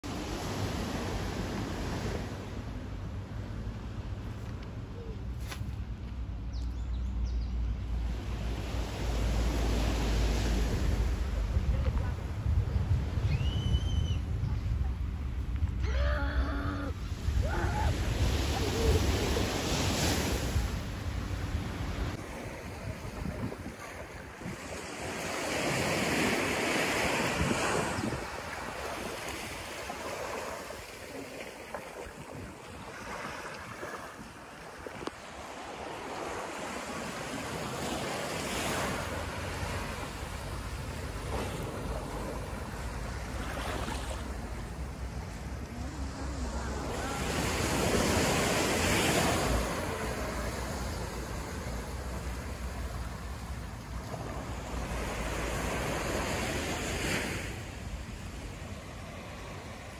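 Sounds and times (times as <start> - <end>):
waves washing up a sandy beach: 0.0 - 4.2, 7.9 - 13.3, 14.3 - 59.9
wind rumbling on microphone: 6.7 - 36.4.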